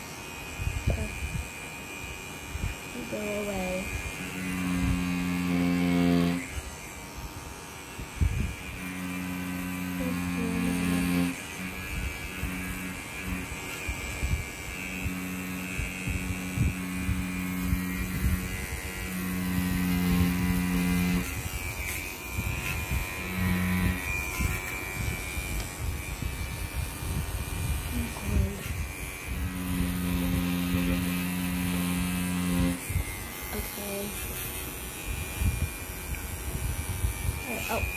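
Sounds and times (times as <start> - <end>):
tattoo pen buzzing: 0.0 - 37.9.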